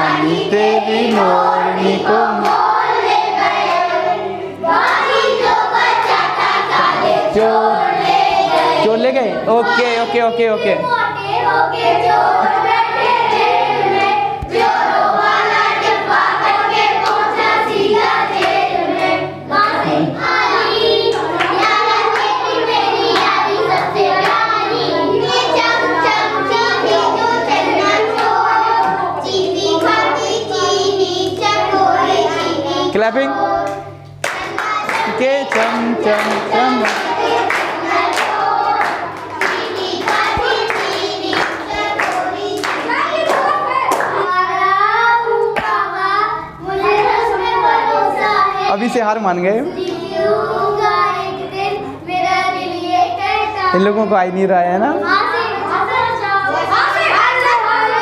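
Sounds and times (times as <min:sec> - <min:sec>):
girls singing together: 0:00.0 - 0:48.9, 0:49.6 - 0:53.8, 0:55.0 - 0:58.0
hands clapping in a beat: 0:02.4 - 0:02.7, 0:33.7 - 0:44.2, 0:45.6 - 0:45.8.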